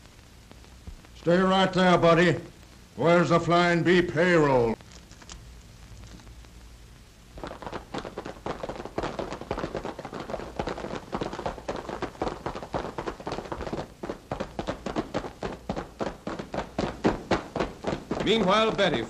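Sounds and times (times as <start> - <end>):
faint low hum: 0.0 - 19.0
galloping hoofbeats: 7.4 - 19.0.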